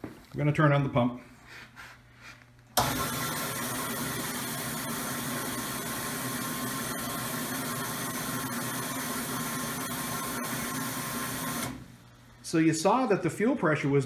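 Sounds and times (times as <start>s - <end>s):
fuel pump humming with hiss: 2.8s - 12.4s.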